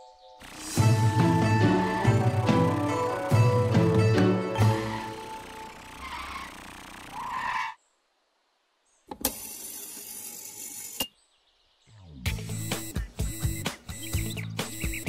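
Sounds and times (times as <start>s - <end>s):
background music: 0.0s - 6.1s, 12.0s - 15.0s
even mechanical noise: 0.4s - 4.0s, 4.6s - 7.8s
cartoon vehicle driving: 0.4s - 7.8s.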